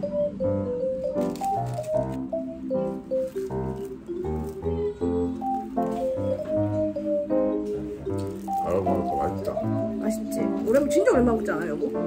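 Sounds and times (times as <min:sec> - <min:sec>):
light melody over bass line: 0:00.0 - 0:12.0.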